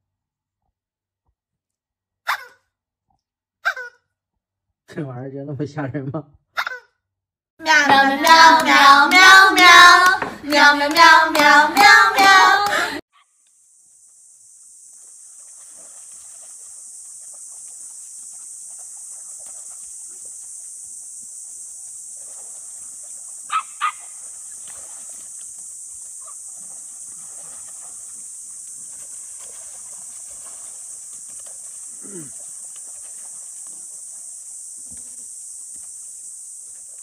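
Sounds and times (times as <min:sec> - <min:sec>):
puppy yipping: 0:02.3 - 0:02.6, 0:03.6 - 0:04.0, 0:23.5 - 0:24.1
steady high hiss: 0:28.0 - 0:37.0.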